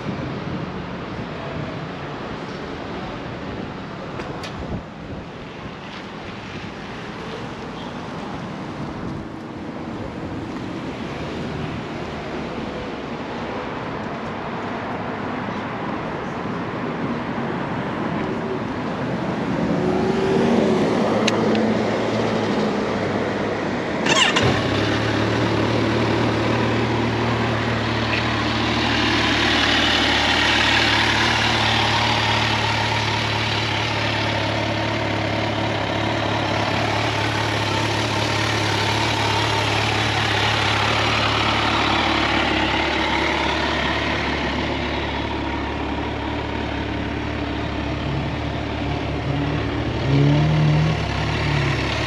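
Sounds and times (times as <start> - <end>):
motorcycle engine starting: 24.0 - 45.3
motorcycle engine idling: 24.0 - 49.1.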